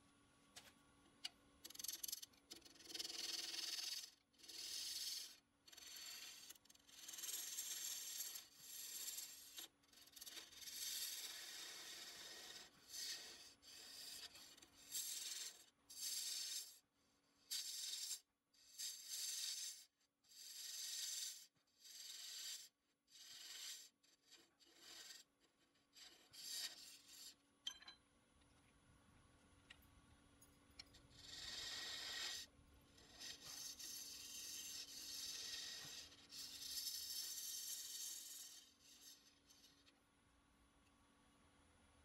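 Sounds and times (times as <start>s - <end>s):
tool scratching spinning wood: 1.6s - 16.7s, 31.1s - 39.9s.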